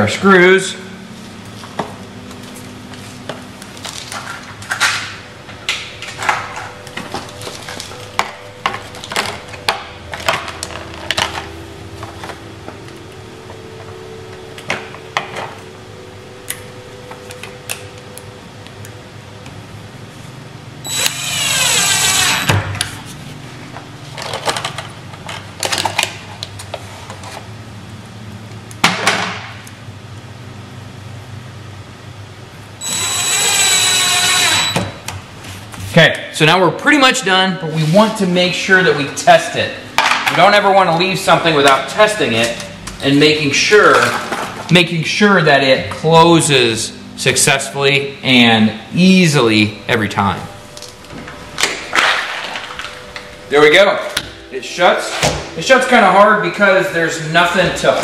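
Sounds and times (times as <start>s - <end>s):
drill motor running: 20.8s - 22.6s, 32.8s - 34.9s.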